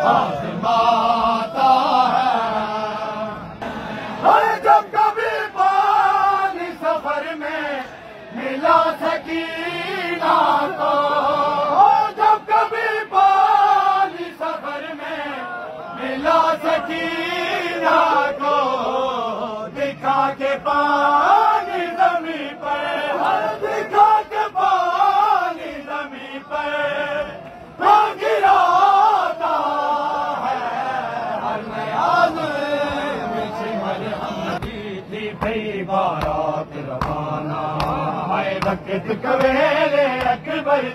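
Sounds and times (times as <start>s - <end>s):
men chanting a lament: 0.0s - 40.9s
hand slaps on chest: 37.0s - 37.2s, 37.8s - 38.0s.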